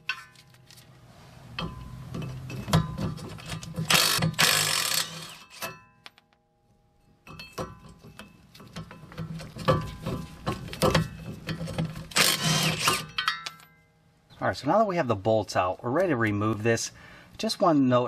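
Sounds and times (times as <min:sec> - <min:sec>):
tool and bolts clicking and knocking: 0:01.5 - 0:06.4, 0:07.2 - 0:13.7
impact wrench bursts: 0:03.4 - 0:05.7, 0:12.1 - 0:13.1.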